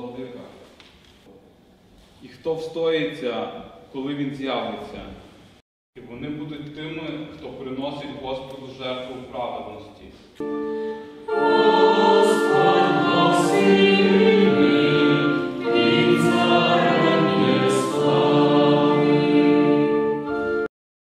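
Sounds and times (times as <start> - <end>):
digital keyboard chords: 10.4 - 20.7
group singing a hymn: 10.9 - 20.7.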